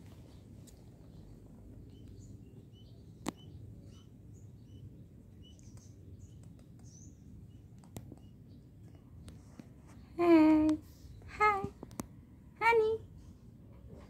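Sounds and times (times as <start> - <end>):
low ambient noise: 0.0 - 14.0
small birds chirping: 0.2 - 13.6.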